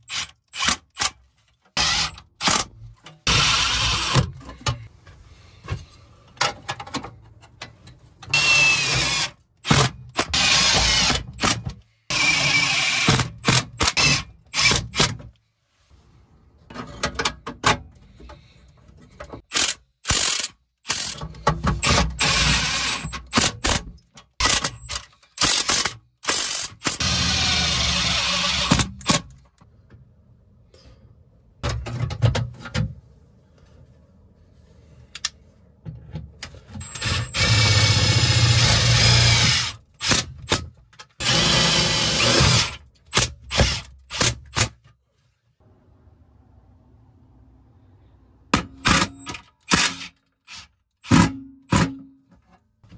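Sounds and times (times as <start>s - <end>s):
cordless drill driving screws: 1.8s - 2.6s, 8.3s - 15.0s, 19.5s - 21.2s, 21.8s - 23.4s, 24.4s - 29.2s, 36.8s - 40.2s, 41.2s - 44.4s.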